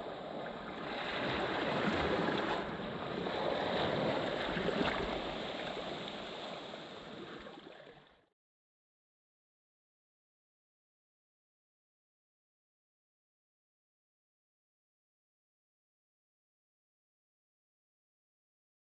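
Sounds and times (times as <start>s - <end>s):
small waves washing on sand: 0.0s - 7.9s.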